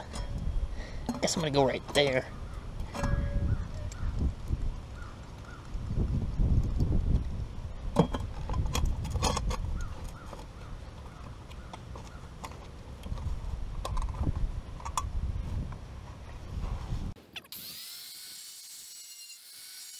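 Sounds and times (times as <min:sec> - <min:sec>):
wind on microphone: 0:02.3 - 0:10.8, 0:13.0 - 0:17.2.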